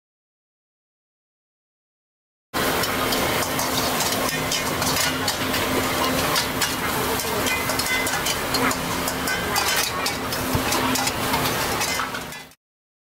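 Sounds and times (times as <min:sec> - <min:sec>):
food sizzling in a wok: 0:02.6 - 0:12.6
metal spatula scraping a wok: 0:02.6 - 0:12.6.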